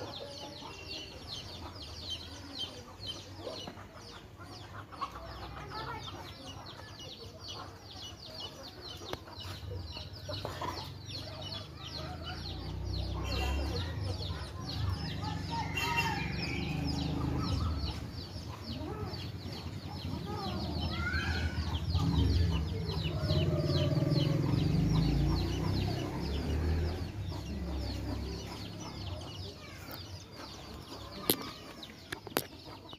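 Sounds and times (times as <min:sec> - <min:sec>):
chickens clucking: 0:00.0 - 0:32.9.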